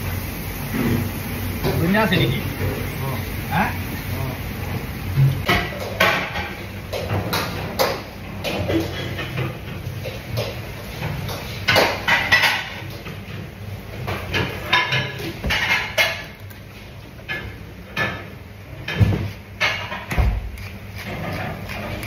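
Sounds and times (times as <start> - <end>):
dishes and utensils clinking: 5.2 - 16.6, 17.2 - 20.2.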